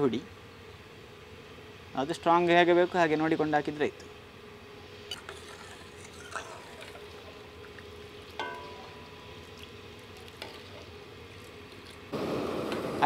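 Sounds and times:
ladle stirring soup in pan: 5.1 - 12.1.

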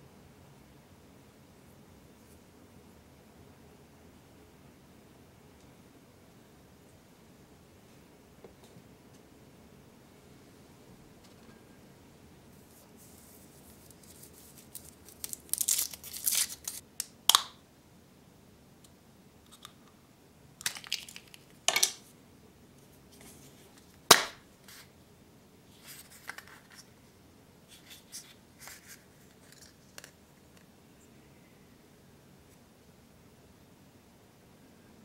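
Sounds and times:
foil wrapper crinkling and tearing: 13.9 - 16.8
chocolate shell cracking: 14.8 - 17.6, 20.6 - 22.0, 24.1 - 24.4
plastic capsule snapping open: 17.0 - 17.6, 20.6 - 22.0.

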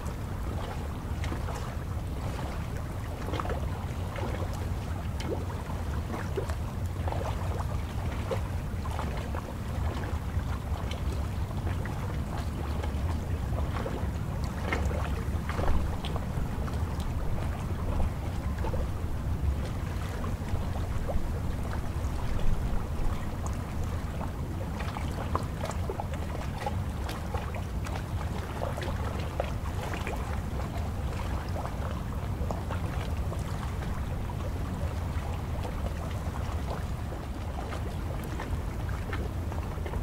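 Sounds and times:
water lapping and splashing: 0.0 - 40.0
wind rumble on microphone: 0.0 - 40.0.

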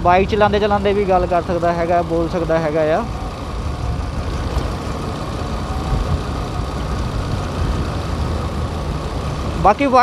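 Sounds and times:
motorcycle engine: 0.0 - 10.0
wind noise: 3.1 - 9.6.

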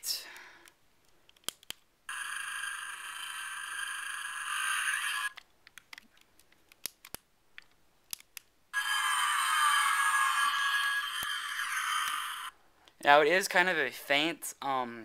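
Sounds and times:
toy electronic sound effects: 2.1 - 5.4, 8.8 - 12.6.

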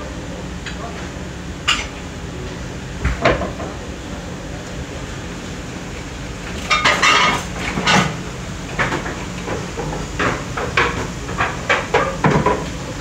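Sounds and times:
low kitchen hum: 0.0 - 13.0
dishes clattering: 6.6 - 8.2.

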